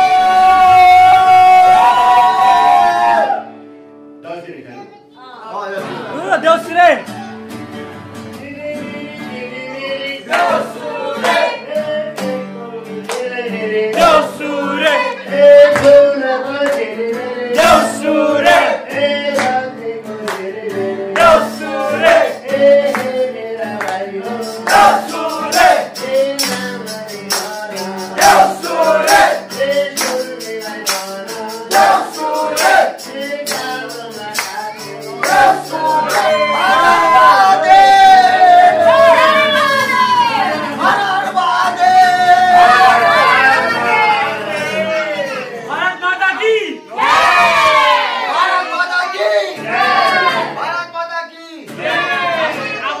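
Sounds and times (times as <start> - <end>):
man singing into a microphone: 0.0 - 2.0, 8.4 - 39.6, 40.4 - 45.5
strummed acoustic guitar: 3.0 - 45.7, 49.2 - 50.7, 51.7 - 53.0
tambourine beat: 24.3 - 36.8.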